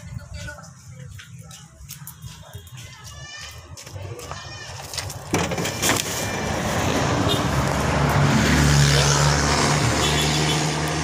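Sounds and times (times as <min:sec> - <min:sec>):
vehicle engine humming: 0:04.0 - 0:11.0.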